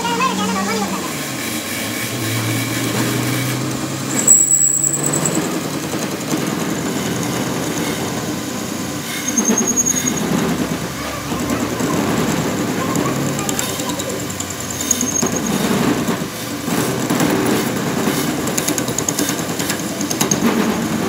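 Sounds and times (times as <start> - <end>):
metal lathe machining: 0.0 - 21.0.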